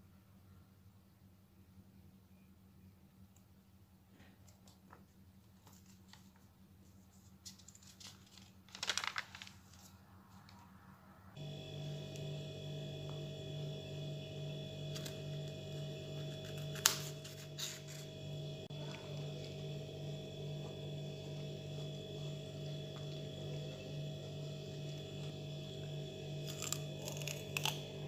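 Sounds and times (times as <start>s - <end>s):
book page rustling: 4.4s - 10.8s, 16.2s - 18.1s.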